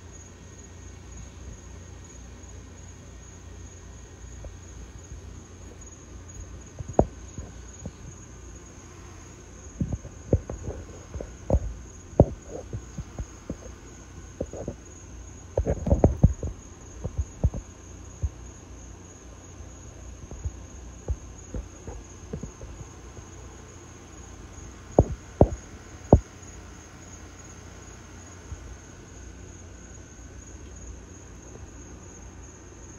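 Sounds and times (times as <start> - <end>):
crickets trilling: 0.0 - 32.9
low thumps on microphone: 9.8 - 14.8, 15.5 - 18.4, 25.0 - 26.3.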